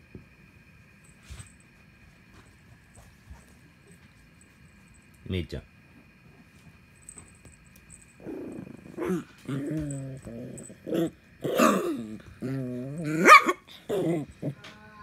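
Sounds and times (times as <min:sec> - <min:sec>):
dog growling: 0:08.2 - 0:14.6
dog yelping: 0:13.1 - 0:14.3.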